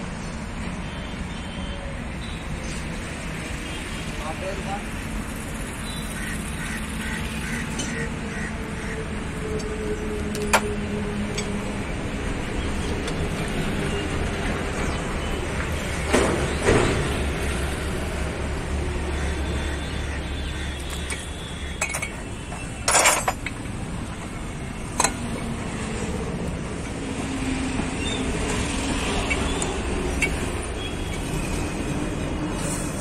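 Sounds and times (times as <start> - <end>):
metal clanks from wrench: 22.8 - 23.6.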